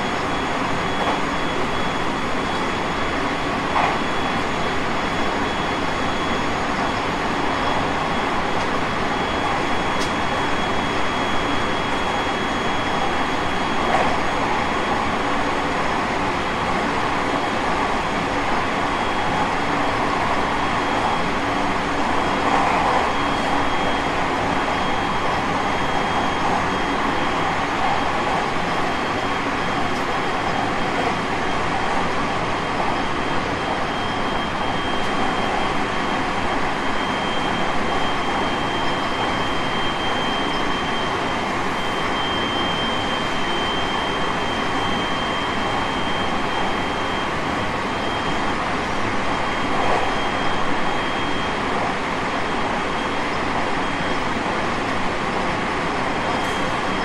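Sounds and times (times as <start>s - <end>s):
train rolling rumble and rail noise: 0.0s - 57.0s
thin steady high tone: 17.5s - 55.4s.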